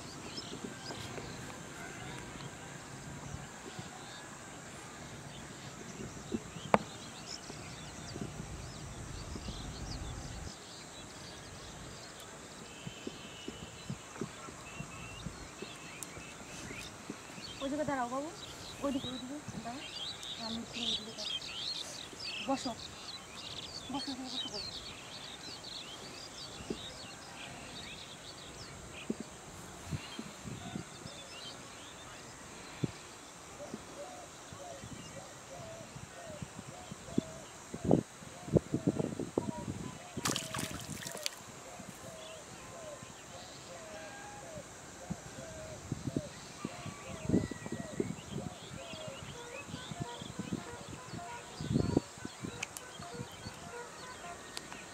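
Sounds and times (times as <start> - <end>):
steady outdoor hiss: 0.0 - 54.9
small birds chirping: 5.3 - 34.0, 36.8 - 43.7.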